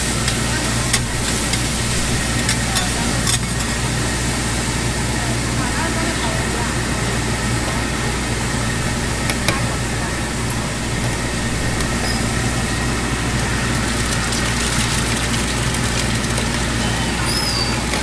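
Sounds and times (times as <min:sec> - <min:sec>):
meat and egg sizzling: 0:00.0 - 0:05.0, 0:07.9 - 0:18.0
griddle hum and hiss: 0:00.0 - 0:18.0.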